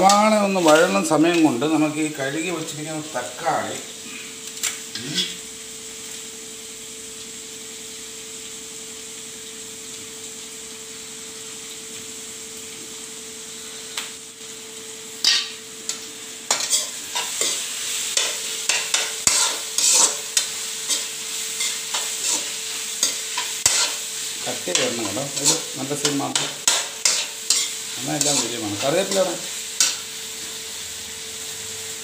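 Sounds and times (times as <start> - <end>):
onions sizzling in oil: 0.0 - 32.0
spatula scraping a pan: 15.2 - 30.1.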